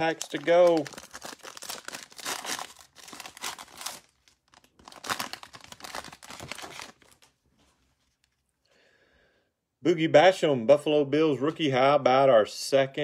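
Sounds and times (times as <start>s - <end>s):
foil wrapper crinkling and tearing: 0.0s - 7.3s.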